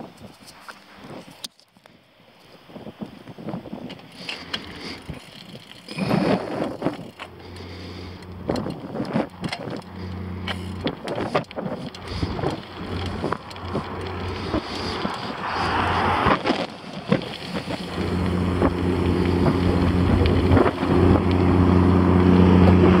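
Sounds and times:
wind rush and road noise: 0:00.0 - 0:23.0.

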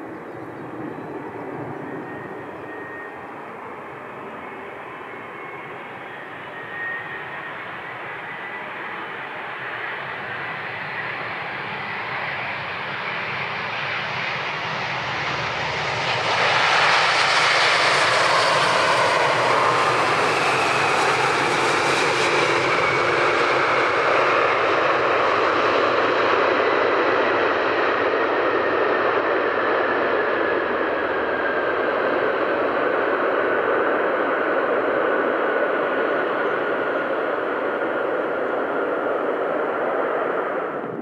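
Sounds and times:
faint falling engine whine: 0:00.0 - 0:12.6
jet engines roaring: 0:00.0 - 0:41.0.

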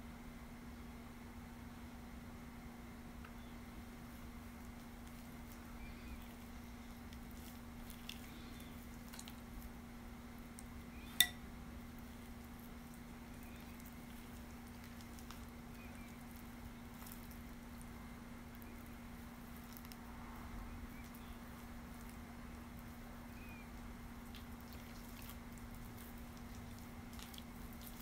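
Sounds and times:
steady low hum: 0:00.0 - 0:28.0
wet squishing and patting: 0:04.0 - 0:09.8, 0:11.9 - 0:28.0.

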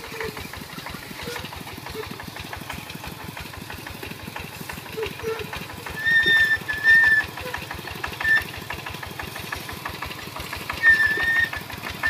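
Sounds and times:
diesel engine running under load: 0:00.0 - 0:12.0
high thin squeal: 0:05.0 - 0:07.5, 0:10.8 - 0:11.6.

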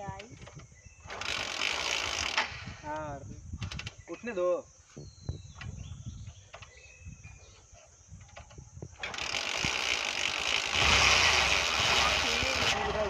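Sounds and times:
kick-start clicking and ratcheting: 0:00.4 - 0:02.7, 0:08.3 - 0:13.0.

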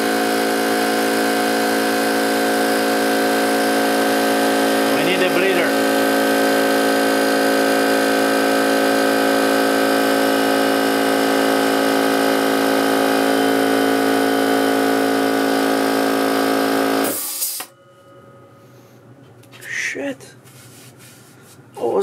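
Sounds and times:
air compressor pump running: 0:00.0 - 0:17.7
air hiss: 0:17.1 - 0:17.7.

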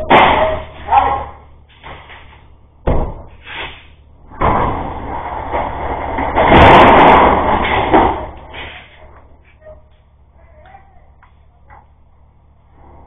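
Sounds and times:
sharp bang: 0:00.0 - 0:02.0.

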